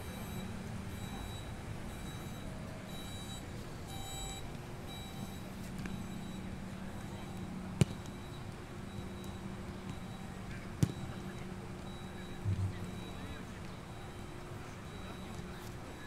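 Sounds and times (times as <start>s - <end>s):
faint distant voices: 0.0s - 16.0s
steady background hum: 0.0s - 16.0s.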